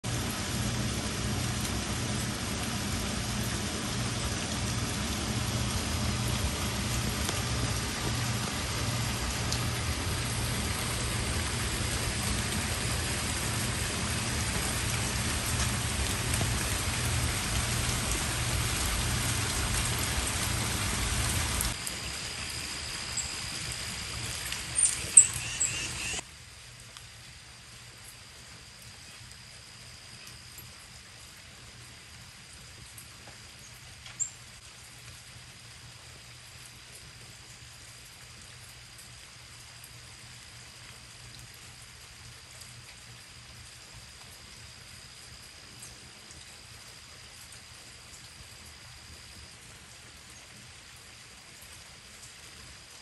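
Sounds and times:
steady rain: 0:00.0 - 0:53.0
low pulsing hum: 0:00.1 - 0:25.1
bird chirps: 0:24.8 - 0:26.2.

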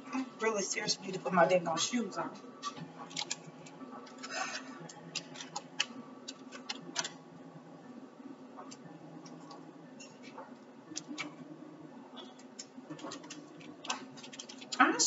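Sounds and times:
steady low hum: 0:00.0 - 0:15.0
cards clicking and tapping: 0:12.2 - 0:14.8.

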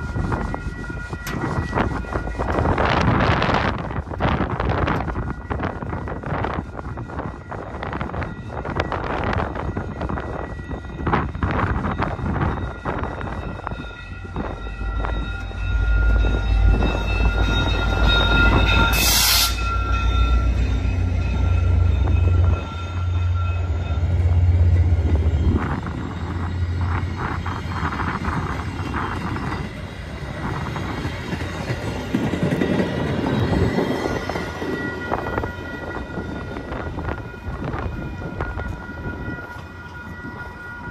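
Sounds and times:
train wheels clicking and clattering: 0:00.0 - 0:10.3, 0:25.0 - 0:40.9
crossing bells ringing: 0:00.0 - 0:40.9
diesel locomotive engine rumbling: 0:00.0 - 0:40.9.

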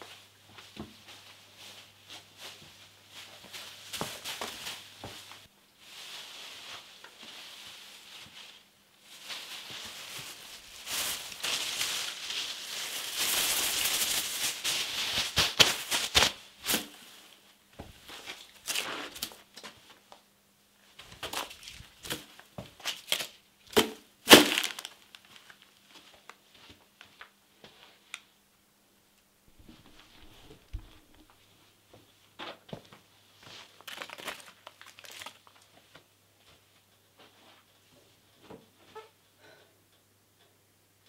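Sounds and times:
plastic bin liner crinkling: 0:01.6 - 0:20.0, 0:21.0 - 0:26.4, 0:33.5 - 0:35.8
loud plastic crunches: 0:21.1 - 0:25.3, 0:33.7 - 0:35.7.

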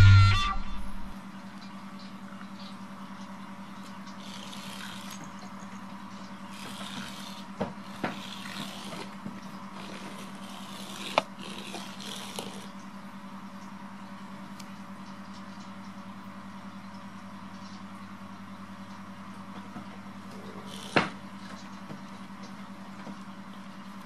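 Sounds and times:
steady low hum: 0:00.0 - 0:23.0
light scraping and rustling: 0:06.1 - 0:12.8.

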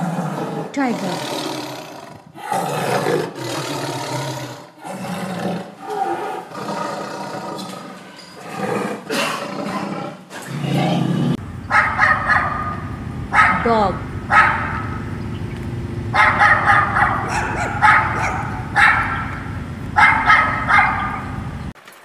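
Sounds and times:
tiger roaring: 0:00.0 - 0:21.6
dog barking and yelping: 0:11.7 - 0:15.1, 0:16.1 - 0:21.4.

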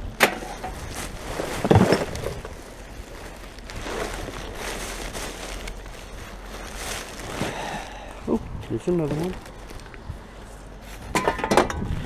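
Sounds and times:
outdoor background noise: 0:00.0 - 0:12.0
plastic bags rustling: 0:00.0 - 0:12.0.

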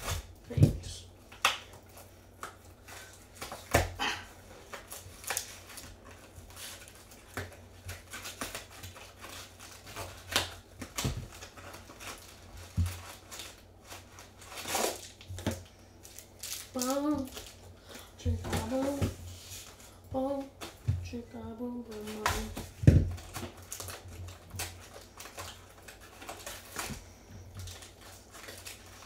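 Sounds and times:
wrappers crinkling and tearing: 0:00.0 - 0:20.8, 0:21.8 - 0:29.0.

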